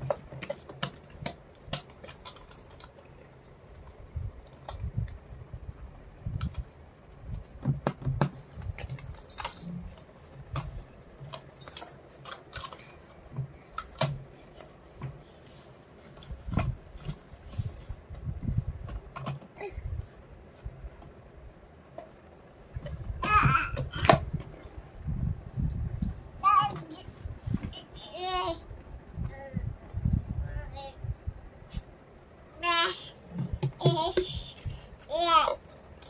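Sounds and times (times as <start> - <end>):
plastic toys clicking and knocking: 0.0 - 4.9, 7.4 - 15.2, 33.3 - 35.3.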